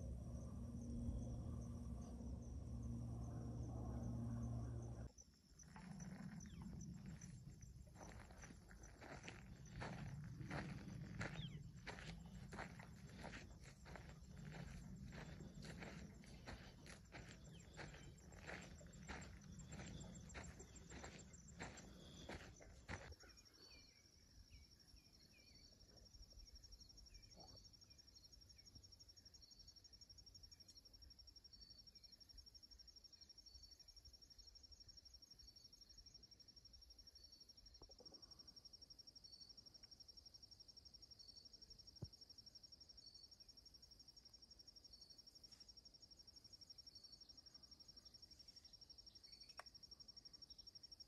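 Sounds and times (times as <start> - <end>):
high-pitched insect pulsing: 0.0 - 23.1
insects trilling: 0.0 - 51.0
footsteps on sandy trail: 5.7 - 23.2.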